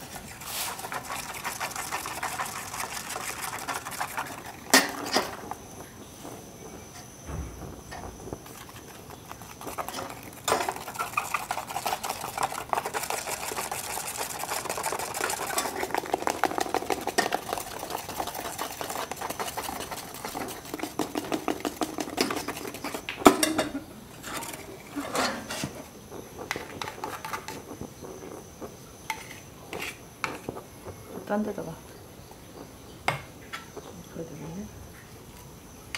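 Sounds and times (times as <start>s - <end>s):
loud knock: 7.3s - 8.3s
stick scraping metal ladle: 24.2s - 27.7s.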